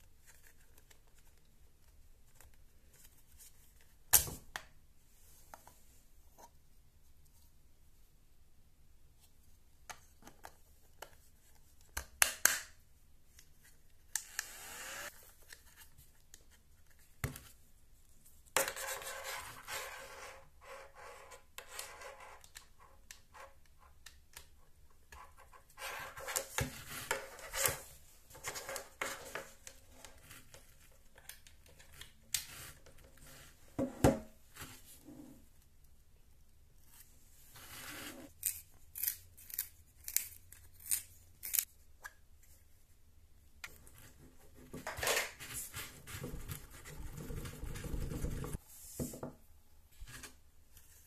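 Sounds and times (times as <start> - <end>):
plastic housing rubbing and scraping: 46.0 - 48.6.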